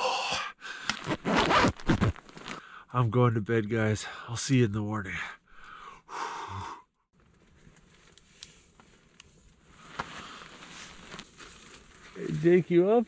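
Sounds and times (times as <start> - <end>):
soft rustling: 7.2 - 12.9.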